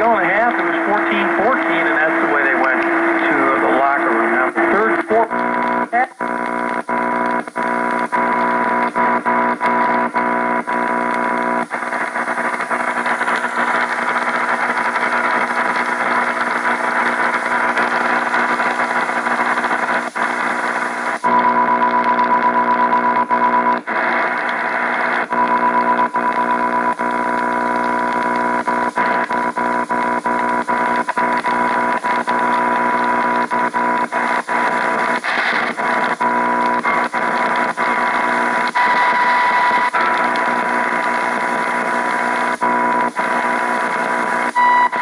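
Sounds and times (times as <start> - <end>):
radio crackles: 0.0 - 45.0
radio interference buzz: 0.0 - 45.0
swooping radio tuning tone: 0.0 - 45.0
high radio whistle: 0.1 - 5.4, 30.7 - 42.0, 42.6 - 45.0.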